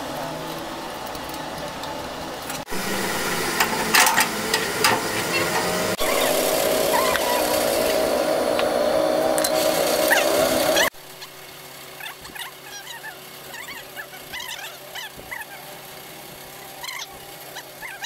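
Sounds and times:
machine humming: 0.0 - 11.5.

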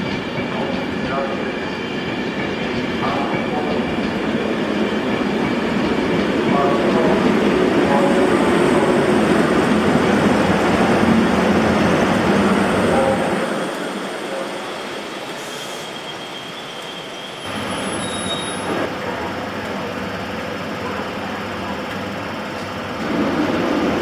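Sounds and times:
faint high wheel squeal: 15.4 - 18.8
wheels rumbling on rail: 16.7 - 24.0.

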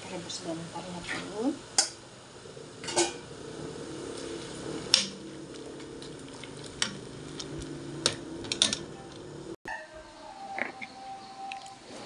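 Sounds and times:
water boiling in a pot: 0.0 - 9.6.

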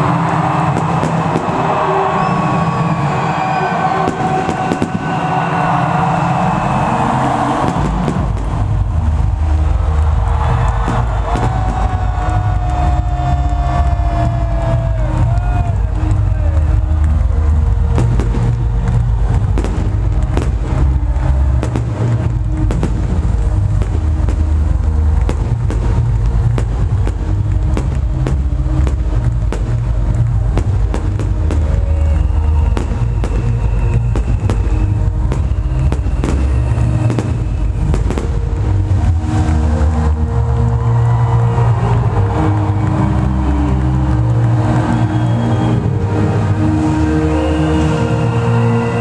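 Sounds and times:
electronic dance music: 0.0 - 49.0
fireworks cracking and popping: 0.3 - 2.8, 4.0 - 5.7, 7.3 - 14.9, 15.9 - 39.6.

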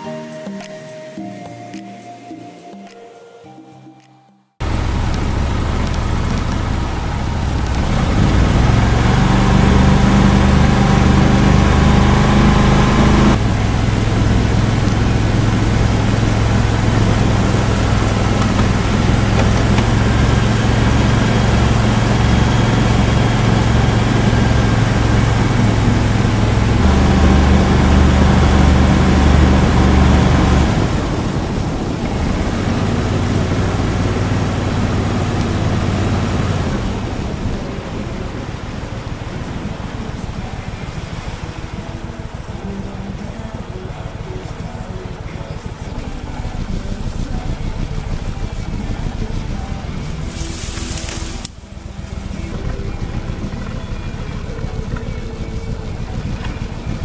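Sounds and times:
boat motor running: 4.6 - 57.0
rush of wind and water: 28.2 - 47.6.

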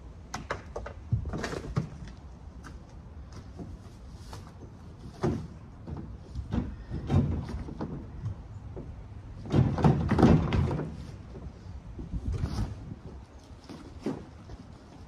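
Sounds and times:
shed parts knocking and rattling: 5.0 - 12.1.

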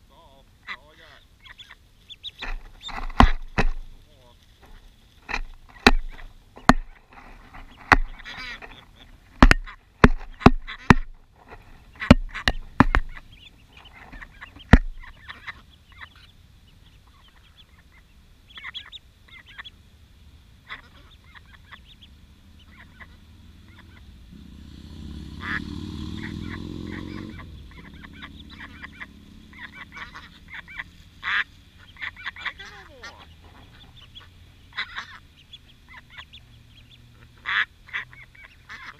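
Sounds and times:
ducklings peeping: 0.1 - 24.3, 25.1 - 38.9
taps against camera: 2.4 - 3.9, 5.3 - 7.0, 7.8 - 8.2, 9.4 - 11.2, 12.0 - 13.2, 14.6 - 15.1.

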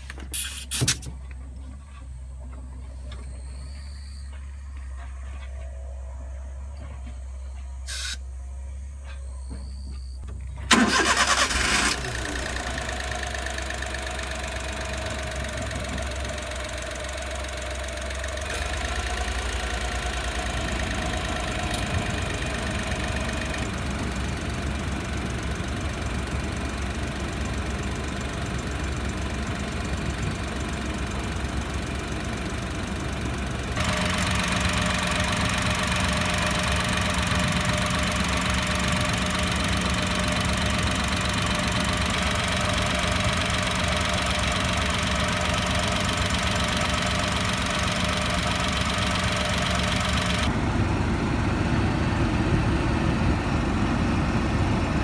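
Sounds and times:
small engine idling: 1.1 - 55.0.

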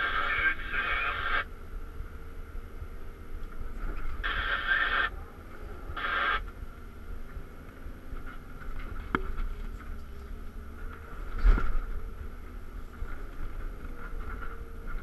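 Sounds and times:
excavator engine running: 0.0 - 15.0.

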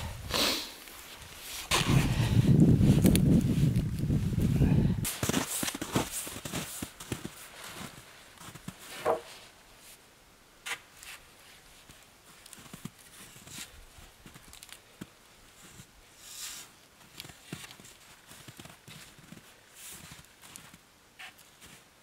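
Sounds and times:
boots crunching on snow: 5.1 - 9.4
wooden poles knocking and scraping: 8.9 - 9.4.

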